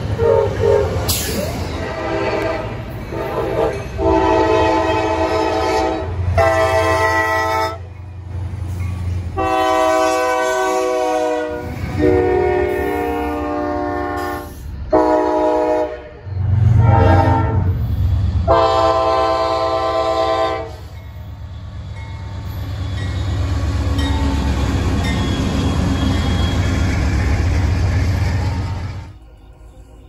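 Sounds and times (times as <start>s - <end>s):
locomotive engine rumble: 0.0s - 30.0s
locomotive air horn blasts: 0.1s - 1.2s, 1.8s - 7.9s, 9.4s - 17.8s, 18.4s - 20.9s.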